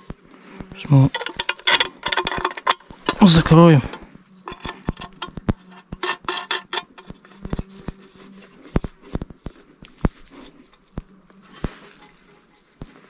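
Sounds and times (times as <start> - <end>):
faint steady hum: 0.0 - 13.0
metal battery box clicks and knocks: 1.1 - 7.7.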